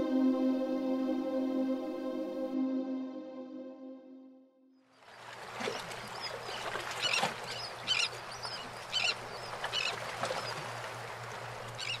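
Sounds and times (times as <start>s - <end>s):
birds calling: 5.0s - 12.0s
water washing: 5.1s - 12.0s.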